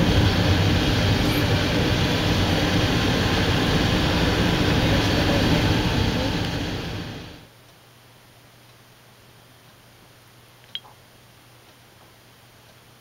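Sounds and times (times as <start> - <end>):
car road and engine noise: 0.0 - 7.5.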